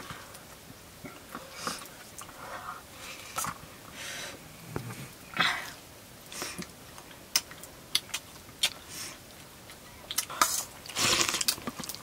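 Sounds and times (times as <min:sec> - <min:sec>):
person chewing food: 0:06.5 - 0:12.0.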